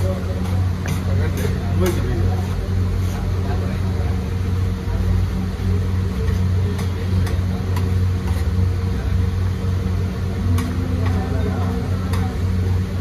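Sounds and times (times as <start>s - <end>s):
low mechanical hum: 0.0s - 13.0s
metal spatula stirring rice: 6.0s - 8.9s.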